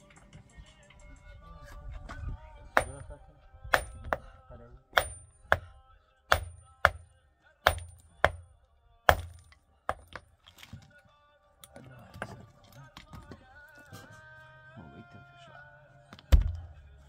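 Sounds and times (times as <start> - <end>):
hammer striking stone: 2.8 - 3.1, 3.7 - 4.3, 4.9 - 5.7, 6.3 - 8.4, 9.1 - 10.3.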